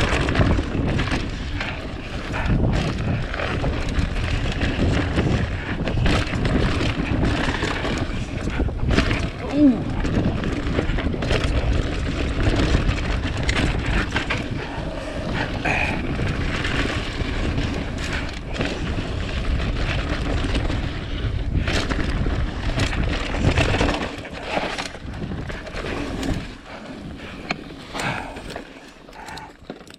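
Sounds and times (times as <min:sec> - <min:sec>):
wind buffeting microphone: 0:00.0 - 0:29.6
bike rattling and knocking: 0:00.0 - 0:29.9.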